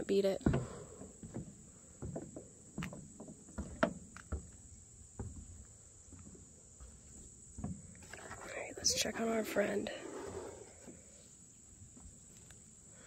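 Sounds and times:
footsteps on wooden boards: 0:00.2 - 0:08.6.

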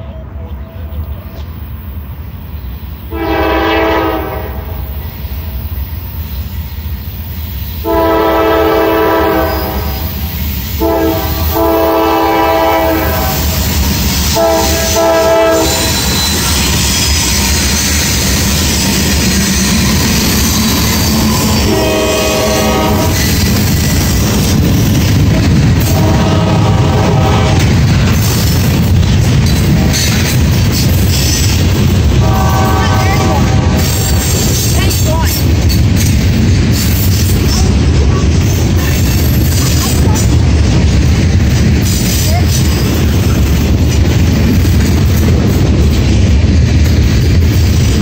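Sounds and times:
locomotive rumble: 0:00.0 - 0:48.0
train horn blasts: 0:03.1 - 0:05.0, 0:07.8 - 0:10.1, 0:10.8 - 0:13.6, 0:14.3 - 0:16.4, 0:21.1 - 0:23.4, 0:25.8 - 0:27.8, 0:32.2 - 0:34.1
train wheels clattering: 0:03.1 - 0:48.0.

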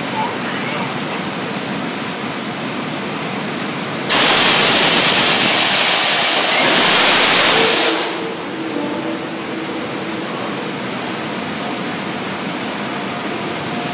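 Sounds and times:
coal rushing from hopper: 0:04.1 - 0:08.4
loud hiss: 0:04.1 - 0:08.6.

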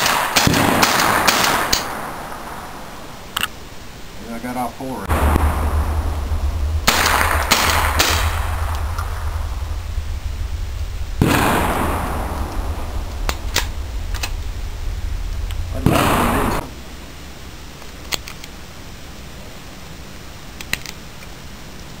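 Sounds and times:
rifle shots with echo: 0:00.0 - 0:02.7, 0:05.1 - 0:09.8, 0:11.2 - 0:14.4, 0:15.8 - 0:16.6.

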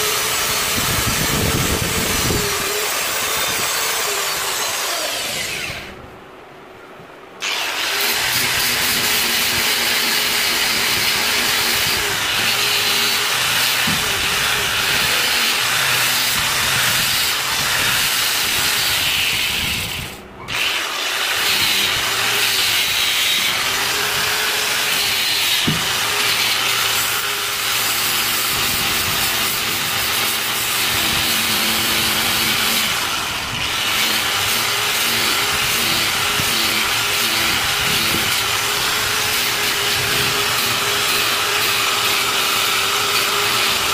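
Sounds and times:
angle grinder grinding steel: 0:00.0 - 0:06.0, 0:07.4 - 0:43.9.

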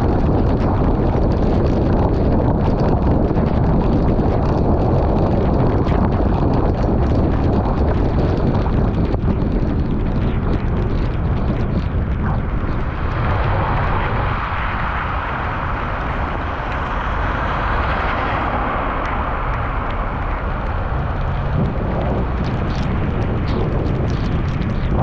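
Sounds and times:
heavy rain: 0:00.0 - 0:25.0
raindrops tapping on camera: 0:00.0 - 0:25.0
wind buffeting microphone: 0:00.0 - 0:25.0
traffic on wet road: 0:13.2 - 0:24.6.

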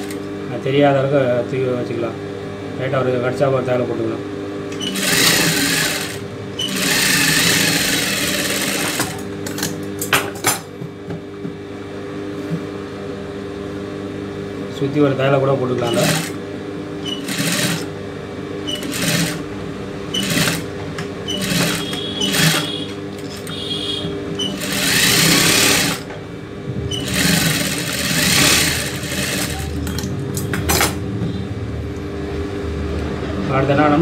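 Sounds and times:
sewing machine motor humming: 0:04.7 - 0:09.3, 0:15.8 - 0:16.4, 0:17.0 - 0:17.9, 0:18.6 - 0:19.5, 0:20.1 - 0:26.1, 0:26.9 - 0:30.0
sewing machine stitching: 0:04.8 - 0:09.2, 0:15.8 - 0:16.4, 0:17.0 - 0:17.9, 0:18.7 - 0:19.4, 0:20.1 - 0:20.7, 0:21.3 - 0:23.5, 0:24.4 - 0:26.0, 0:26.9 - 0:29.8.

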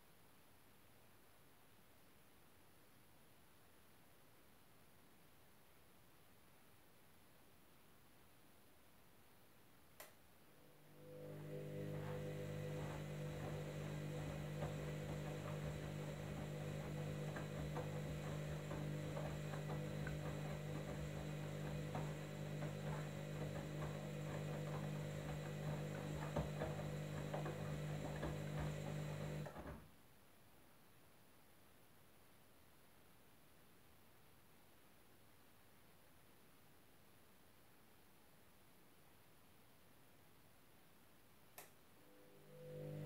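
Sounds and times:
washing machine drum motor humming: 0:10.8 - 0:29.7, 0:42.2 - 0:43.0.

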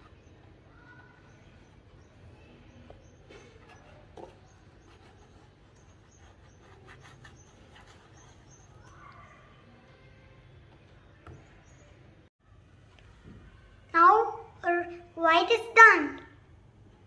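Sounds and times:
paintbrush scratching on canvas: 0:03.4 - 0:09.1.

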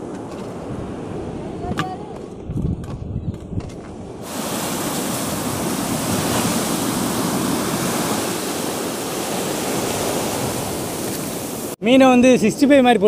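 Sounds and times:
waves breaking on beach: 0:04.2 - 0:11.8.

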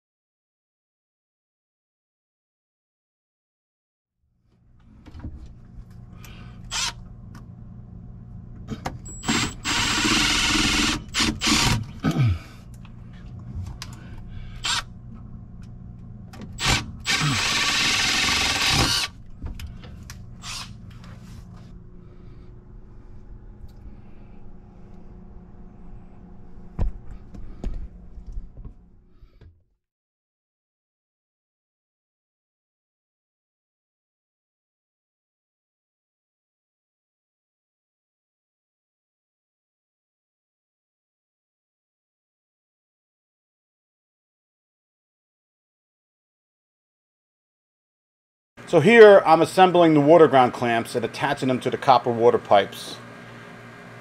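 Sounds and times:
steady low hum: 0:04.5 - 0:29.7
power drill running: 0:06.6 - 0:07.0, 0:09.1 - 0:12.0, 0:14.6 - 0:14.9, 0:16.6 - 0:19.2, 0:20.4 - 0:20.8.

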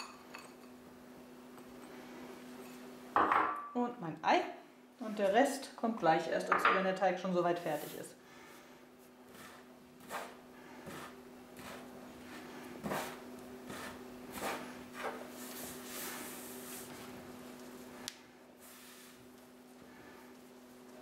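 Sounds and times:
hands rubbing dough: 0:09.0 - 0:21.0.

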